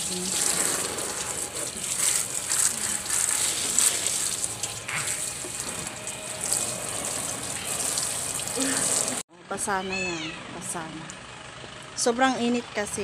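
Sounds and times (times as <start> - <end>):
water spray hissing: 0.0 - 9.2.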